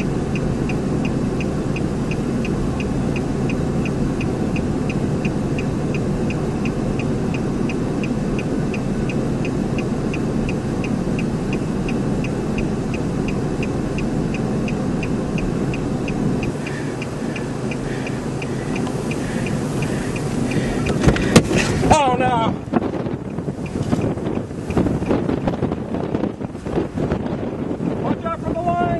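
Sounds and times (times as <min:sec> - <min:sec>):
car warning chime beeping: 0:00.0 - 0:22.2
rushing wind noise: 0:00.0 - 0:28.9.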